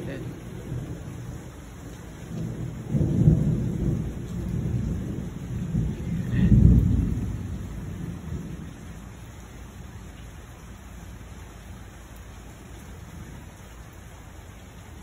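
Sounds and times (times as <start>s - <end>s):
rolling thunder: 0.0s - 9.2s
steady rain: 0.0s - 15.0s.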